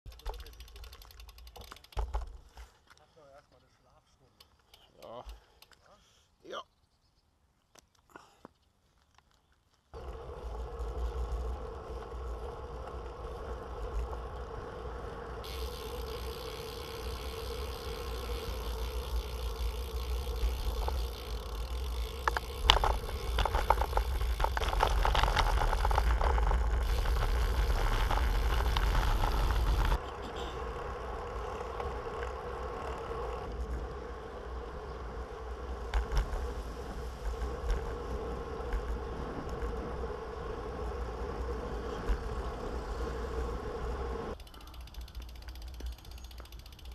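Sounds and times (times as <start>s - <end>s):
bike tyres rattling over cobblestones: 0.0s - 2.9s, 8.9s - 46.9s
thin steady hum: 10.0s - 46.7s.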